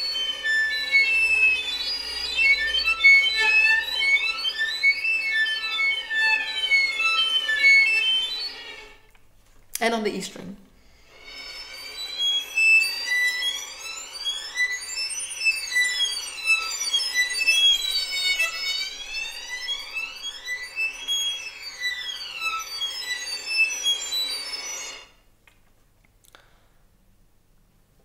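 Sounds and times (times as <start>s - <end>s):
violin harmonic glissando: 0.0s - 9.1s, 10.9s - 25.2s.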